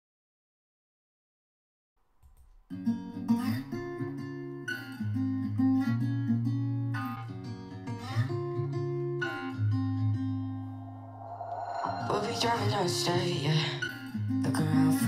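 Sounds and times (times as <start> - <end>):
strummed acoustic guitar pop song: 12.1 - 15.0.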